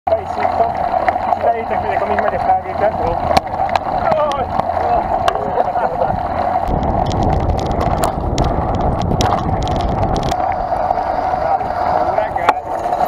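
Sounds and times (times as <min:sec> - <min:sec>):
bike tyres rumbling on dirt: 0:00.6 - 0:13.0
bike clicks and rattles: 0:03.2 - 0:10.9.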